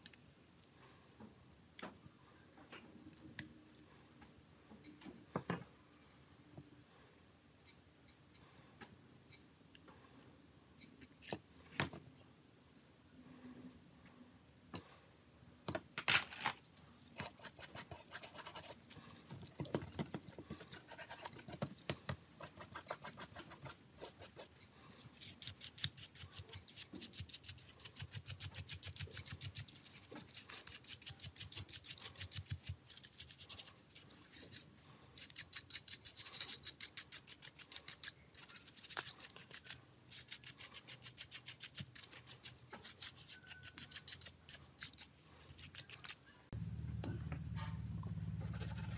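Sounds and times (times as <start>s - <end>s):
brush scrubbing circuit board: 48.4s - 48.9s.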